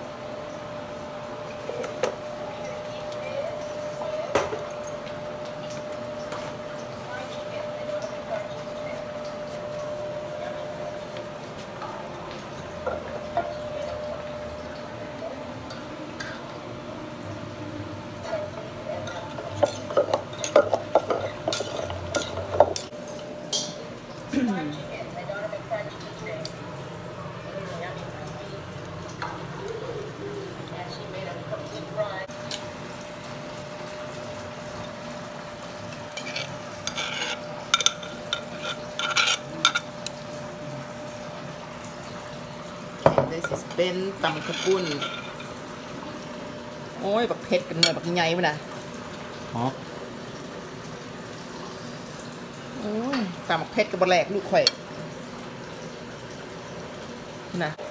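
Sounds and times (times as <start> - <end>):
metal spoon scraping and clinking: 19.1 - 22.9, 36.1 - 39.9, 44.3 - 45.5.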